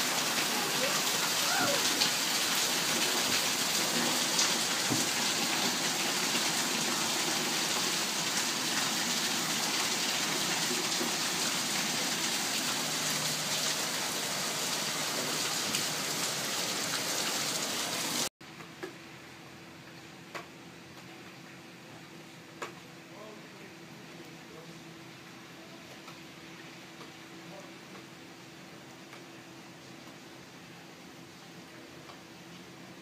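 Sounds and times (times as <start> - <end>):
heavy rain on concrete: 0.0 - 18.3.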